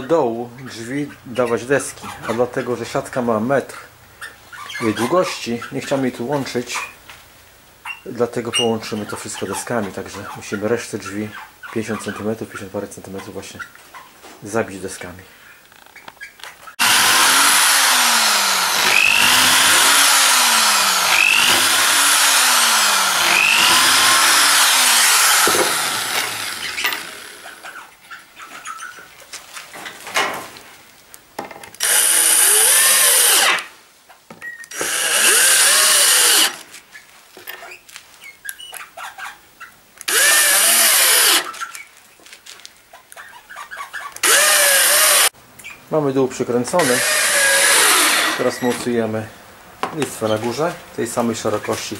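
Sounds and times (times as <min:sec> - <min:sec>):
drill-driver driving screws: 0:16.8 - 0:27.8, 0:31.8 - 0:33.7, 0:34.6 - 0:36.7, 0:40.0 - 0:41.8, 0:44.2 - 0:45.3, 0:46.8 - 0:48.8
electric drill boring wood: 0:16.8 - 0:27.8, 0:31.8 - 0:33.7, 0:34.7 - 0:36.6, 0:40.1 - 0:41.6, 0:44.2 - 0:45.3, 0:46.8 - 0:48.8.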